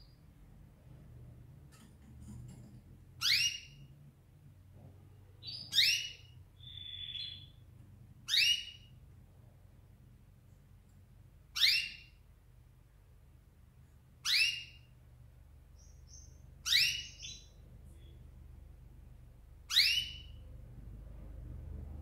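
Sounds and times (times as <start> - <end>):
canary calling: 3.2 - 3.9, 5.4 - 7.7, 8.3 - 9.0, 11.5 - 12.2, 14.2 - 14.9, 15.8 - 18.3, 19.7 - 20.4.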